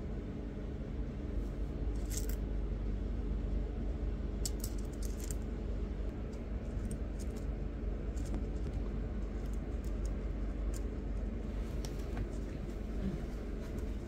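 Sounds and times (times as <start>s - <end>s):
steady low hum: 0.0s - 14.0s
stones clicking together: 4.4s - 5.4s.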